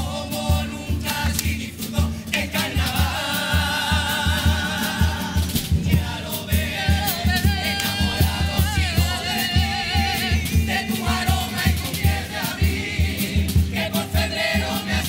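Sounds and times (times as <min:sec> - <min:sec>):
male choir singing in harmony: 0:00.0 - 0:15.0
steady drum beat: 0:00.0 - 0:15.0.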